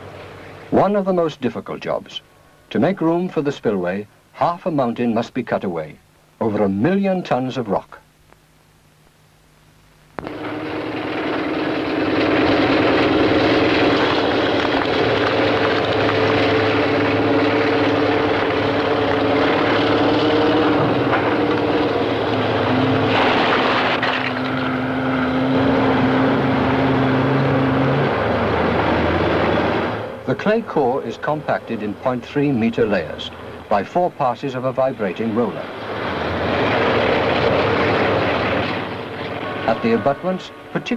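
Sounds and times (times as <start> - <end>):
heavy machinery engine drone: 0.0 - 7.5, 10.2 - 40.9.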